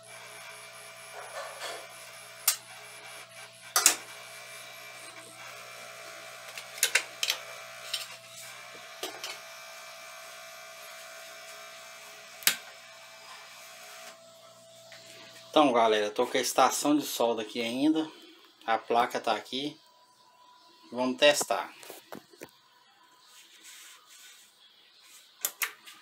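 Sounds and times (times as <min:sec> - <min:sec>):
hot-air blower whirring: 0:00.0 - 0:16.0
tool clicks and taps: 0:03.8 - 0:04.0.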